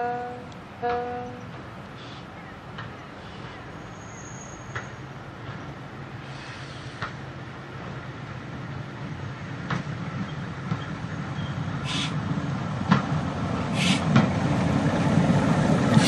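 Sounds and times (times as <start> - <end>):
railbus engine passing: 0.0 - 16.0
wheels clicking on track: 9.6 - 16.0.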